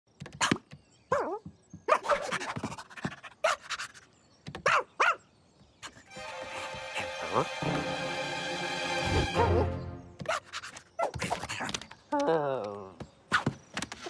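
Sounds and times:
cartoon dog yips and barks: 4.6s - 5.2s
music: 6.1s - 10.2s.

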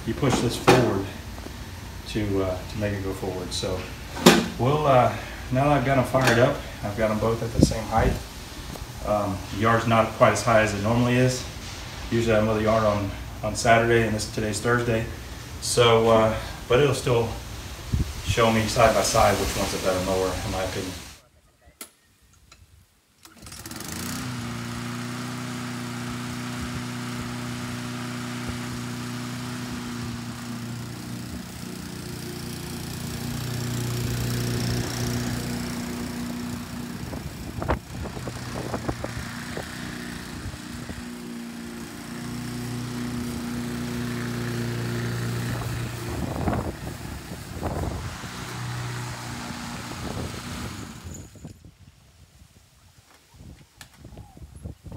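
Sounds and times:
lawn mower engine running: 0.0s - 21.1s, 23.2s - 51.6s
sharp knocks: 4.2s - 4.6s.

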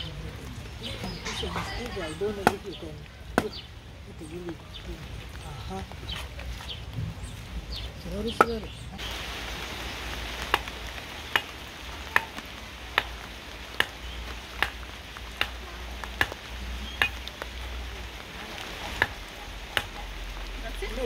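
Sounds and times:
light rain hiss: 0.0s - 21.0s
machete chopping fish: 11.3s - 11.5s, 13.8s - 14.0s, 14.6s - 14.8s, 15.4s - 16.4s.

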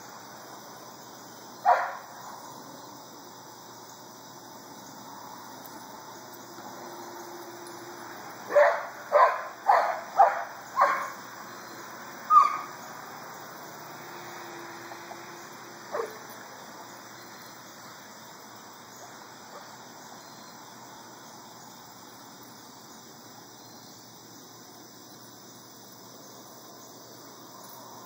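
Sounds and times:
dog barking: 1.6s - 2.0s, 8.5s - 11.1s.

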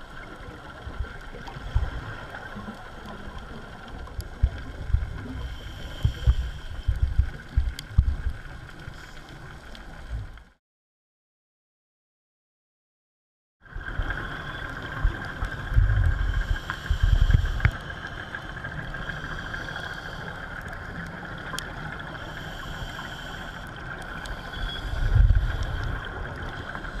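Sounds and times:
steady underwater hum: 0.0s - 10.6s, 13.6s - 27.0s
low underwater rumbles: 0.5s - 10.6s, 13.7s - 22.1s, 24.1s - 27.0s.

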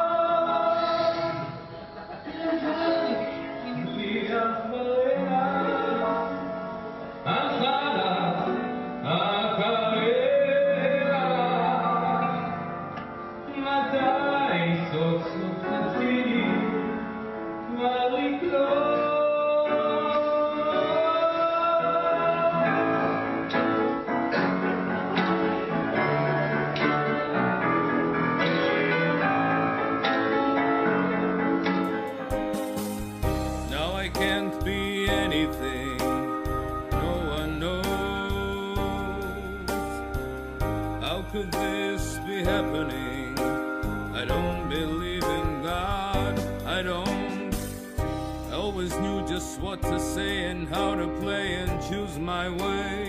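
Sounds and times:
grand piano: 0.0s - 53.0s
person singing long notes: 33.6s - 47.7s.

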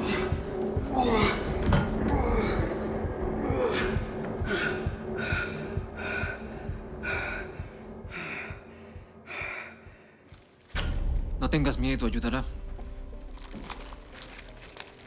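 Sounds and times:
man breathing hard: 3.6s - 10.6s.

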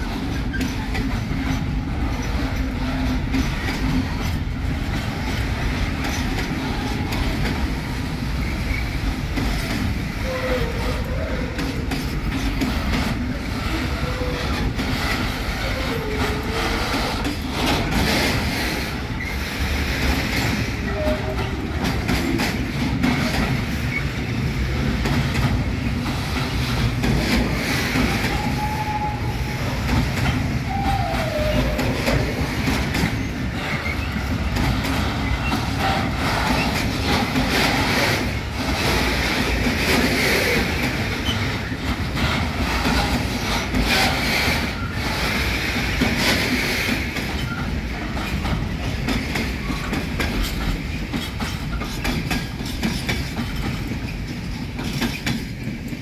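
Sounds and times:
train wheels clattering on rail joints: 0.0s - 56.0s
wheel squeals: 28.2s - 34.5s.

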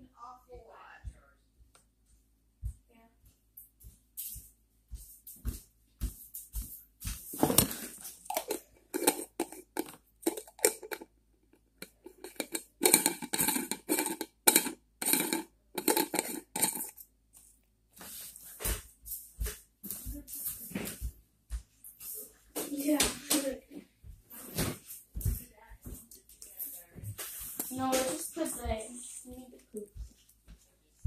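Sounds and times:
plastic jar rustling and clicking: 7.3s - 17.1s.

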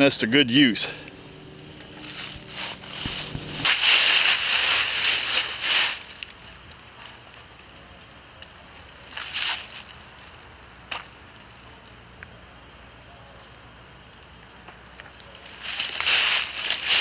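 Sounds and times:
loud rushing noise: 1.0s - 6.1s.

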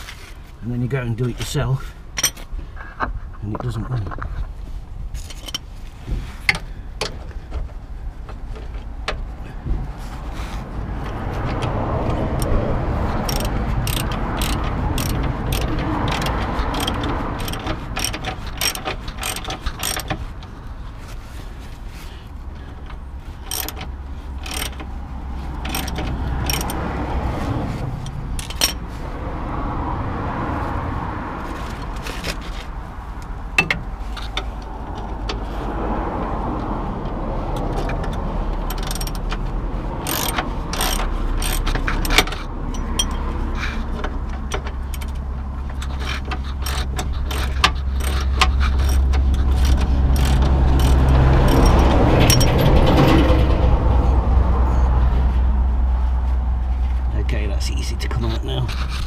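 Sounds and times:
metal tools clinking: 2.1s - 2.5s, 5.2s - 5.7s, 13.2s - 20.3s, 22.8s - 26.8s, 28.0s - 28.9s, 38.6s - 39.3s, 40.0s - 53.4s
socket ratchet clicking: 11.6s - 20.2s, 23.4s - 26.9s, 28.0s - 28.8s, 37.6s - 43.2s, 44.4s - 52.7s
low rumble: 47.1s - 57.3s.

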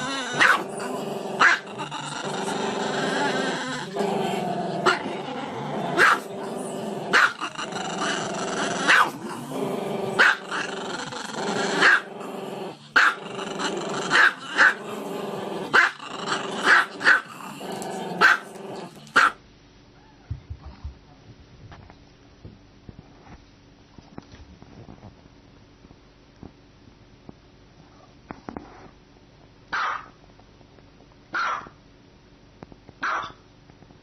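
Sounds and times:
dog barking: 0.4s - 0.6s, 6.0s - 6.3s, 7.1s - 7.4s, 8.9s - 9.2s, 10.2s - 10.4s, 11.8s - 12.1s, 13.0s - 13.2s, 16.6s - 17.2s, 18.2s - 18.5s, 19.2s - 19.4s, 29.7s - 30.2s, 31.4s - 31.8s, 33.0s - 33.4s.

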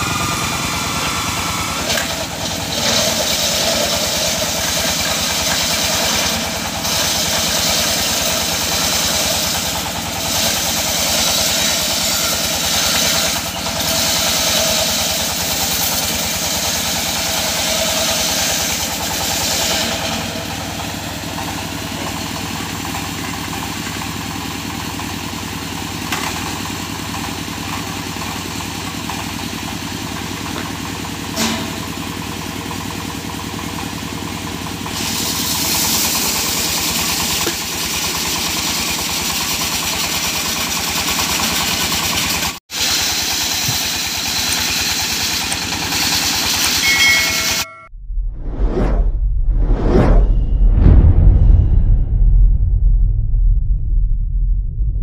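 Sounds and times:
stationary engine running: 0.0s - 55.0s
saw blade ripping through log: 0.2s - 20.6s.

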